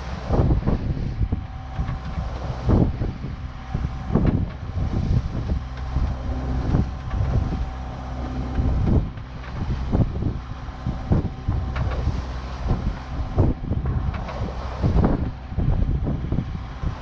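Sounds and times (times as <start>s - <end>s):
boat diesel engine running: 0.0s - 17.0s
waves slapping hull: 0.0s - 17.0s
wind buffeting microphone: 0.0s - 17.0s.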